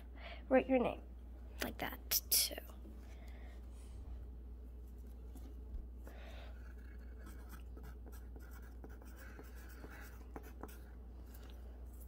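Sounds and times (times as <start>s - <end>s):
pencil scratching on paper: 6.5s - 11.0s.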